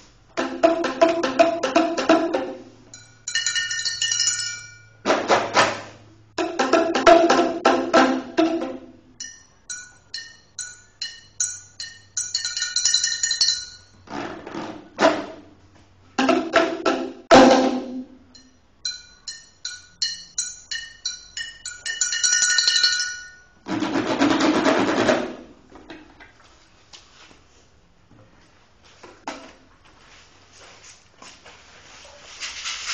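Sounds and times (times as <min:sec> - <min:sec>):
rapid hand drum beating: 0:00.4 - 0:02.6, 0:06.4 - 0:08.9
ringing struck notes: 0:06.4 - 0:14.0, 0:17.3 - 0:23.6.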